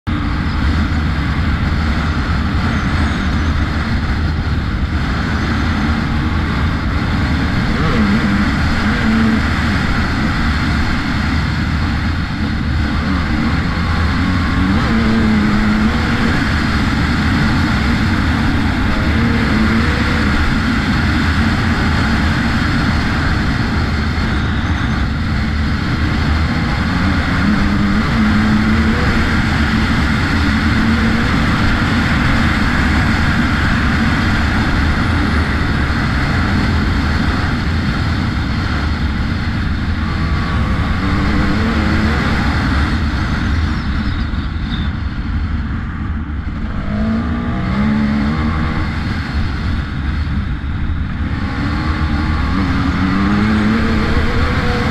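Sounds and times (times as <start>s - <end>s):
dirt bike engine running: 0.0s - 54.9s
wind rumble on camera: 0.0s - 54.9s.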